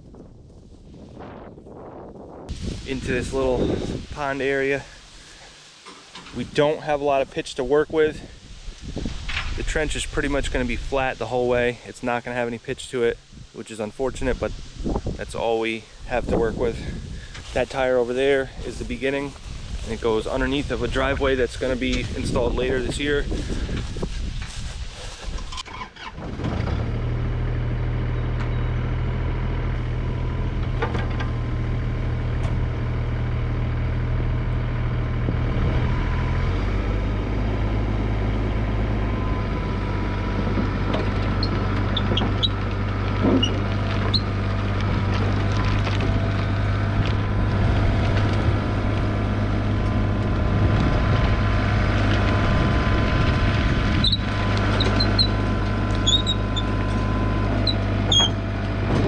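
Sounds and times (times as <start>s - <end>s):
diesel engine running: 2.5s - 11.3s, 26.2s - 59.0s.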